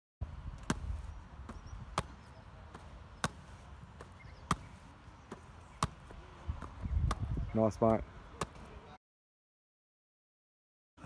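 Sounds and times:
hands slapping a football: 0.6 - 7.3.

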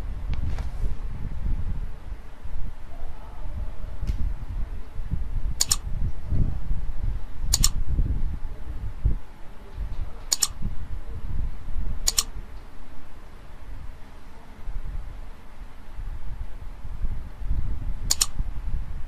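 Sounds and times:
low steady rumble: 0.0 - 19.0
computer mouse clicks: 5.6 - 5.8, 7.5 - 7.8, 10.3 - 10.6, 12.1 - 12.3, 18.1 - 18.4.

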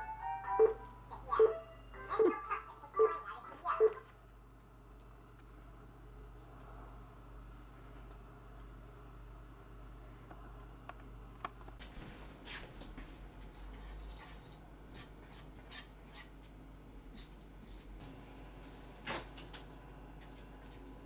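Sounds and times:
whisk scraping metal bowl: 13.5 - 16.4, 17.1 - 17.9.

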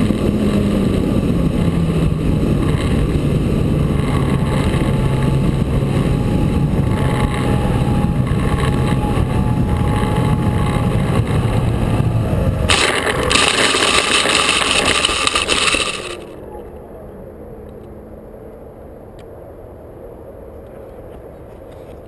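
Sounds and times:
wind buffeting microphone: 0.0 - 16.2.

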